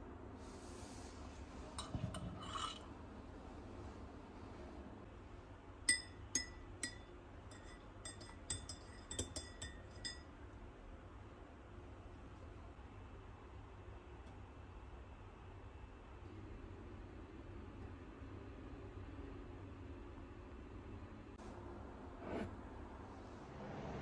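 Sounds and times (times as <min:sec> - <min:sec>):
teaspoon clinking in a mug: 0:05.9 - 0:10.4.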